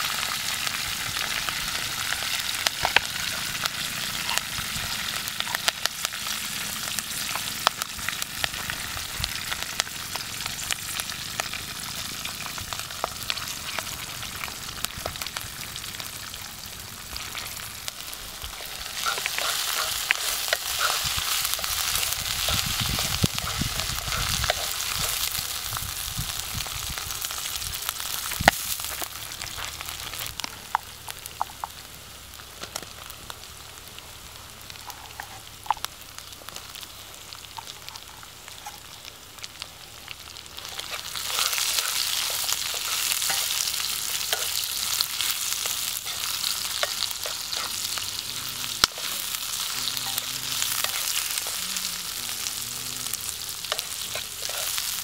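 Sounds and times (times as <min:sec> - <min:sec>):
vegetables sizzling in oil: 0:00.0 - 0:55.0
wooden spatula scraping a pan: 0:34.8 - 0:35.4.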